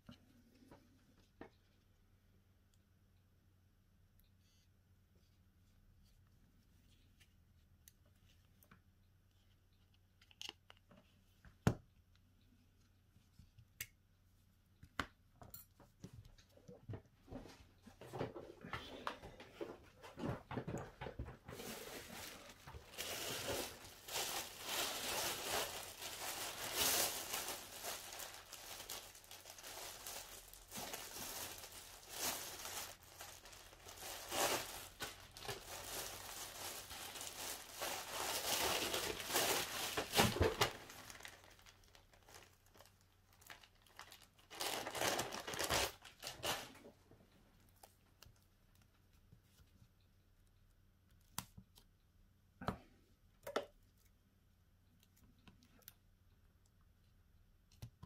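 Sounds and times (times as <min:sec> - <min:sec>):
hands crinkling and tearing material: 0:18.2 - 0:50.0.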